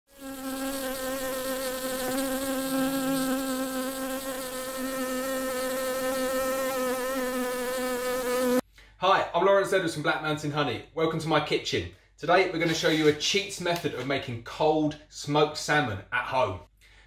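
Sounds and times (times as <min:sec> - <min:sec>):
bee buzzing: 0:00.1 - 0:08.6.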